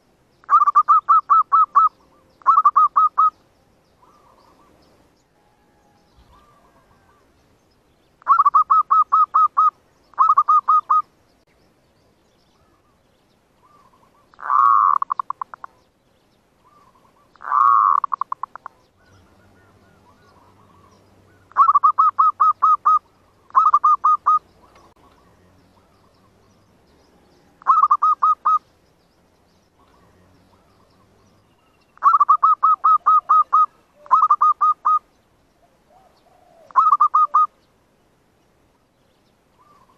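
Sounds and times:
doves cooing: 0.5 - 3.4, 4.0 - 4.8, 5.4 - 7.4, 8.2 - 11.1, 13.6 - 15.8, 16.6 - 26.6, 27.2 - 28.7, 29.8 - 35.0, 35.6 - 37.5, 39.6 - 39.9.

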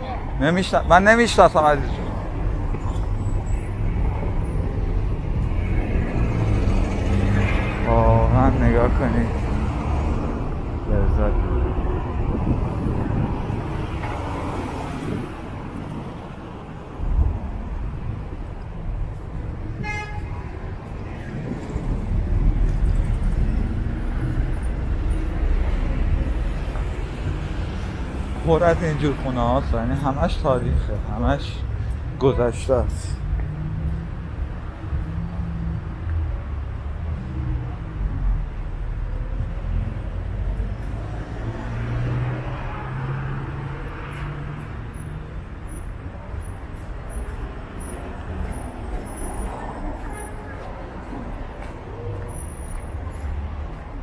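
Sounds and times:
vehicle passing: 0.0 - 19.7, 37.0 - 45.6
street traffic rumble: 0.0 - 54.0
car horn toot: 19.8 - 20.4.

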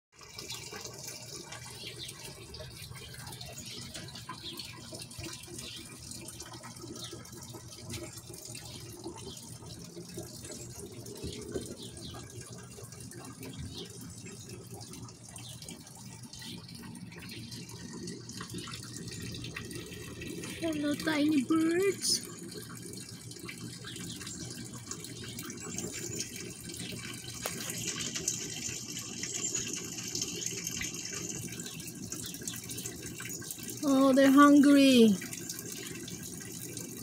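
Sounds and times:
running water: 0.1 - 37.0.

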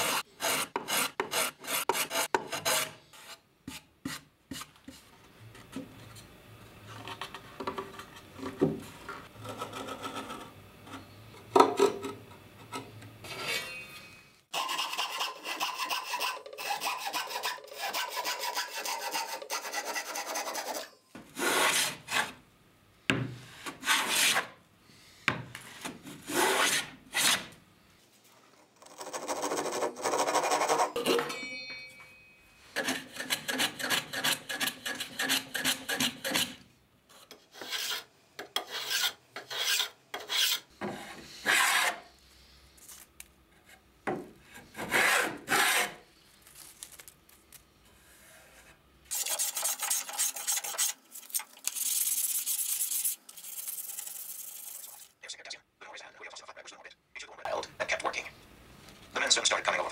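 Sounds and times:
hand saw rasping through wood: 0.0 - 3.0, 14.5 - 22.3, 32.8 - 36.6, 44.8 - 46.0.

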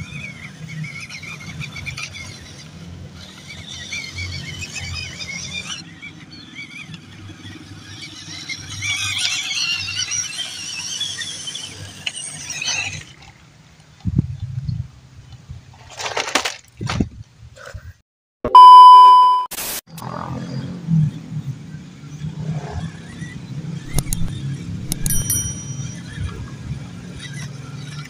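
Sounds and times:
small electric motors whining: 0.0 - 13.4, 22.1 - 28.0
toy truck tumbling thumps: 15.8 - 17.1
electronic beep: 18.5 - 19.5.

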